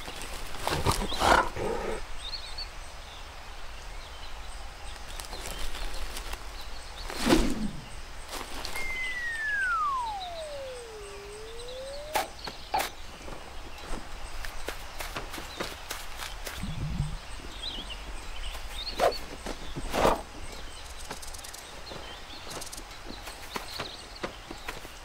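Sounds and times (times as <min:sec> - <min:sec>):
descending slide whistle: 0:08.8 - 0:12.4
cartoon character vocal noises: 0:08.9 - 0:12.3.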